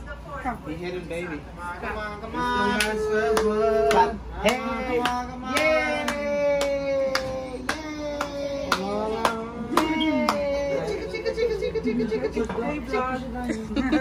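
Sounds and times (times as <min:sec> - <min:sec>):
hand claps: 0:02.7 - 0:10.5.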